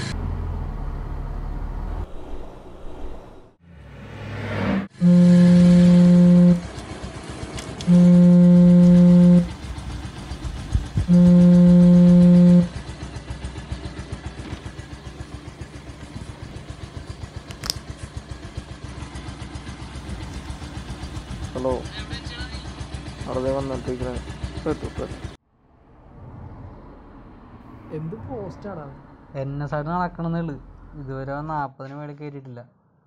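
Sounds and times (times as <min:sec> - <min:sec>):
vehicle horn blasts: 0:04.9 - 0:06.8, 0:07.8 - 0:09.7, 0:11.0 - 0:12.8
motorcycle engine idling: 0:05.0 - 0:25.4.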